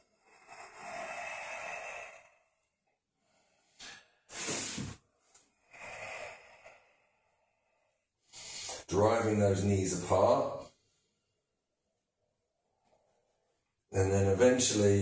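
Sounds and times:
man breathing deeply: 0.0 - 8.9.

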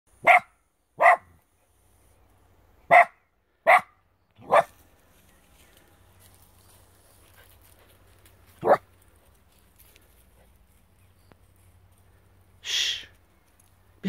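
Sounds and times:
dog barking: 0.2 - 1.4, 2.9 - 4.7, 8.6 - 8.8.

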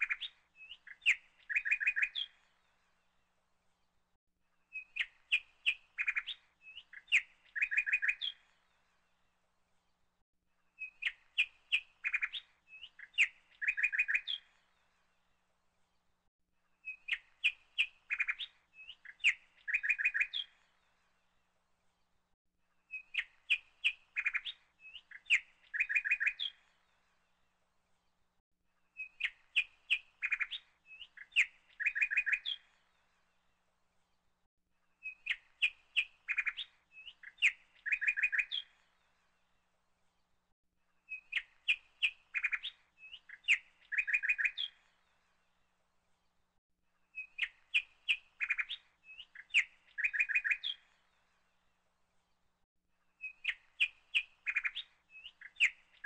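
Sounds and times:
bird chirps and trills: 0.0 - 2.8, 4.7 - 8.8, 10.8 - 14.9, 16.8 - 20.9, 22.9 - 27.2, 28.9 - 33.2, 35.0 - 39.4, 41.0 - 45.5, 47.1 - 51.7, 53.1 - 56.0.

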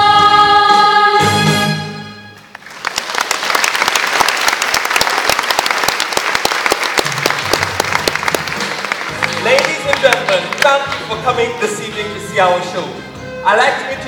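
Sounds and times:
audience applauding: 2.5 - 11.2.

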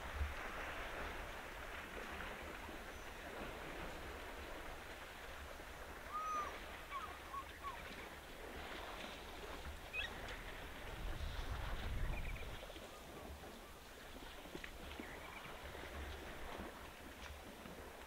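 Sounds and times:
short bird calls: 6.1 - 7.8.

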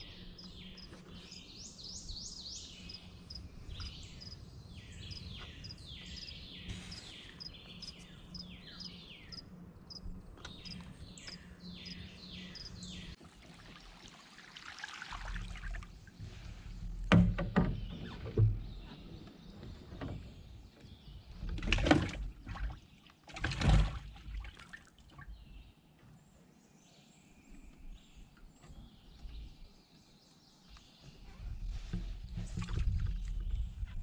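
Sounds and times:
water splashing against boat: 19.8 - 25.4, 31.6 - 33.8.

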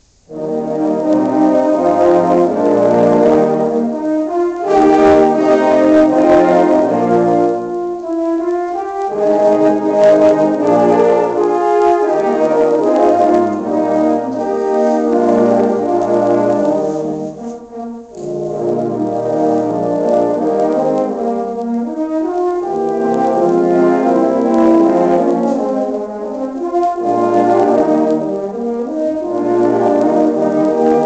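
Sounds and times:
french horn ensemble playing chords: 0.3 - 31.0.

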